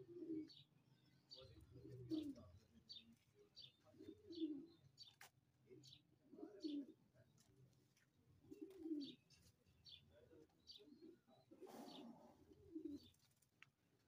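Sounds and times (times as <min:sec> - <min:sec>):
pigeons cooing: 0:00.0 - 0:00.7, 0:01.4 - 0:02.5, 0:03.9 - 0:04.9, 0:05.8 - 0:07.0, 0:08.4 - 0:09.4, 0:10.7 - 0:13.3.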